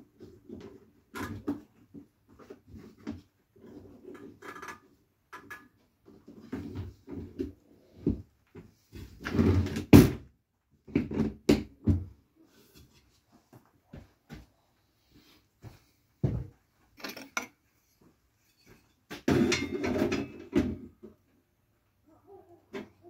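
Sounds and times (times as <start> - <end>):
knocks of parts set down: 19.1 - 20.9.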